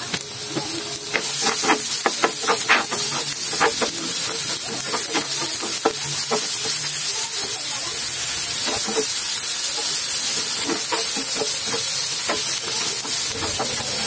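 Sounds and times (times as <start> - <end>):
vegetables sizzling in a pan: 0.0 - 14.0
spatula scraping a pan: 1.1 - 14.0.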